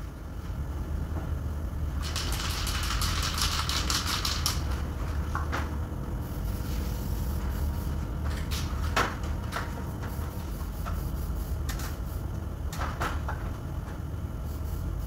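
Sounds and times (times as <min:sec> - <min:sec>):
low workshop hum: 0:00.0 - 0:15.0.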